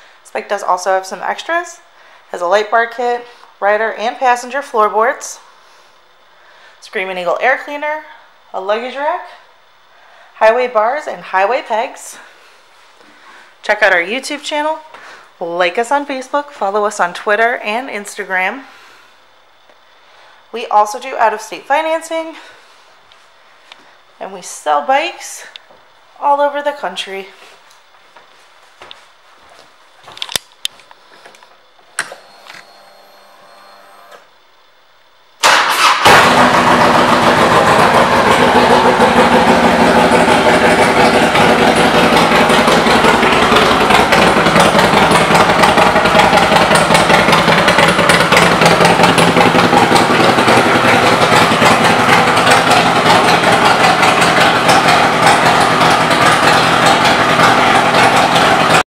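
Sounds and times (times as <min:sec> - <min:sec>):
faint starter whine: 0:30.1 - 0:58.8
motorcycle engine idling: 0:36.2 - 0:58.8.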